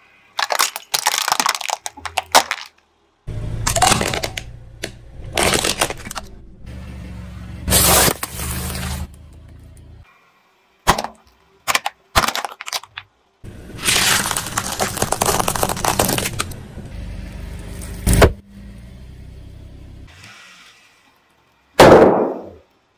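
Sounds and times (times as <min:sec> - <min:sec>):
car tyre crushing shells: 0:00.4 - 0:02.9, 0:03.6 - 0:06.3, 0:10.8 - 0:13.1, 0:13.8 - 0:16.6
loud sharp pop: 0:21.8 - 0:22.6.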